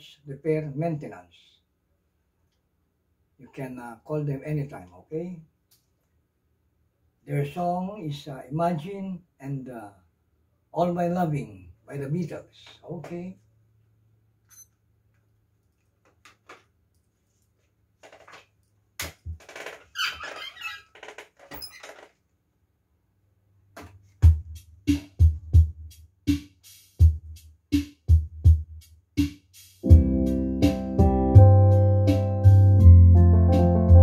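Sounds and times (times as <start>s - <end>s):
drum-machine beat: 24.2s - 31.5s
sustained organ chords: 29.8s - 34.0s.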